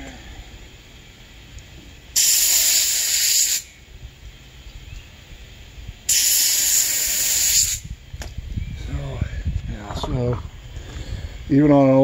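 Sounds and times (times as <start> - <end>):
aerosol spray can hissing: 2.1 - 3.8, 6.0 - 7.9.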